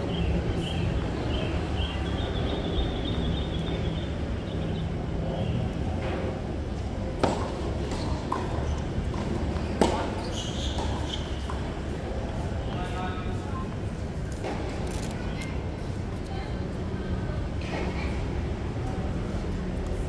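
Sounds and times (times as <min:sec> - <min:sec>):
background noise: 0:00.0 - 0:20.0
tennis ball hit by racket: 0:07.2 - 0:10.2.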